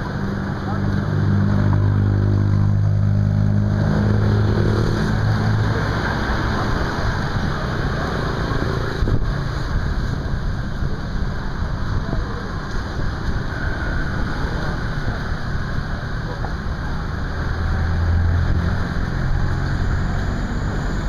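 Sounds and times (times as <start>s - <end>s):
street traffic noise: 0.0s - 21.0s
vehicle engine humming: 0.0s - 21.0s.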